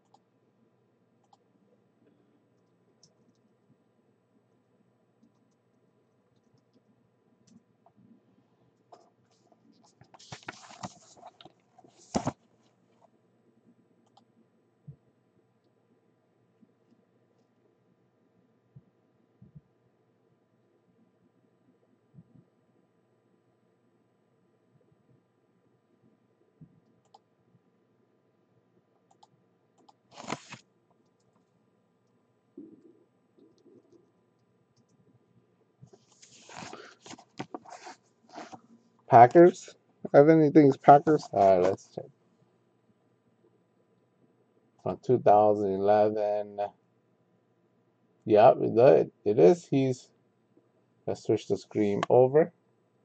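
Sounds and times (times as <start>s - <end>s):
paper crinkle: 10.1s - 12.4s, 30.1s - 30.6s, 36.0s - 38.6s
paper rustling: 10.1s - 12.4s, 30.1s - 30.6s, 36.0s - 38.6s
faint clicks: 26.6s - 27.3s, 29.0s - 30.0s.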